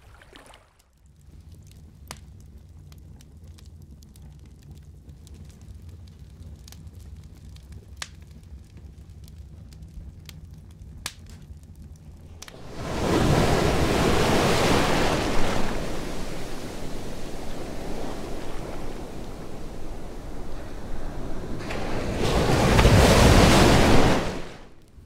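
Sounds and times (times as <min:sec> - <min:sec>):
log fire crackling and popping: 0:01.0 - 0:20.4
ocean waves: 0:12.2 - 0:24.8.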